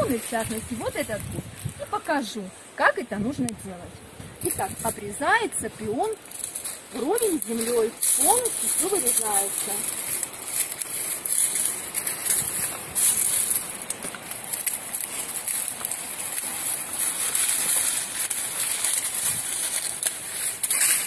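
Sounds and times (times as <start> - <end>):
dry stalks and leaves rustling: 0.0 - 21.0
steady high hiss: 0.0 - 21.0
pruning shears snipping stems: 6.0 - 21.0.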